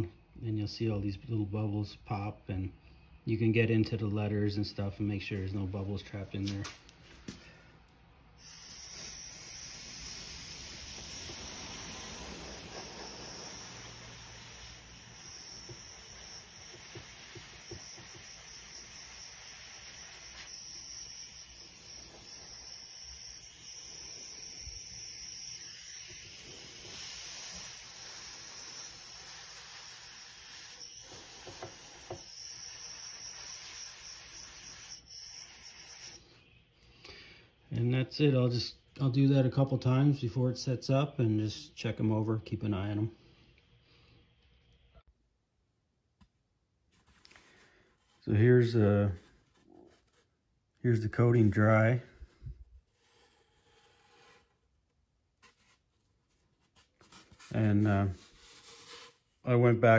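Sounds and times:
compressed air hissing: 8.4s - 36.2s.

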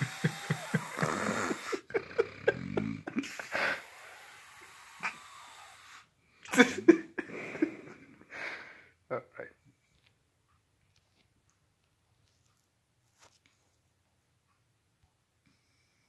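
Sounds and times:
noisy breaths: 0.0s - 6.5s, 7.2s - 9.0s
man snoring and snorting: 0.0s - 6.9s.

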